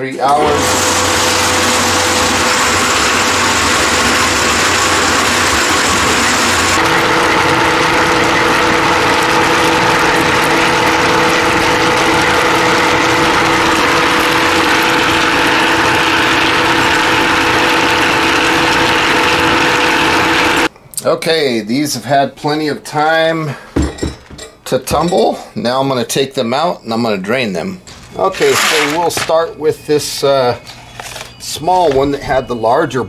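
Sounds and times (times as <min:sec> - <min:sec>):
tumbler motor humming: 0:00.3 - 0:20.7.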